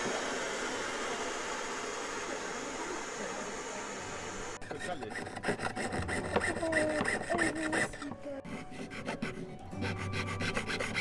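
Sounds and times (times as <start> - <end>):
saw rasping through metal: 4.6 - 11.0.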